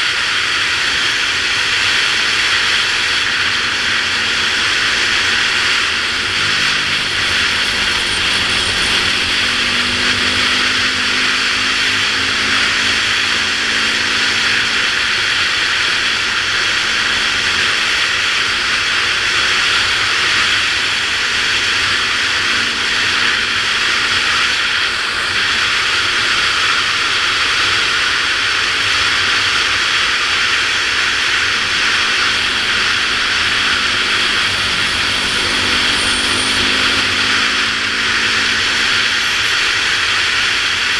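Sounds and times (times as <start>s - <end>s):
dirt bike engine running: 0.0s - 40.9s.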